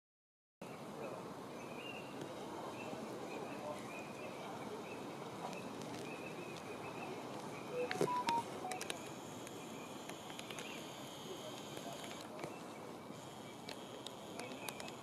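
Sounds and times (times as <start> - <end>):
clicks: 7.8 - 10.7.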